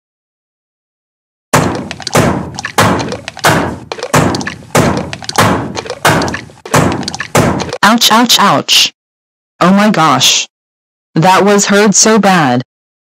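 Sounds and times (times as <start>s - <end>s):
cartoon smash thud: 1.6s - 7.8s.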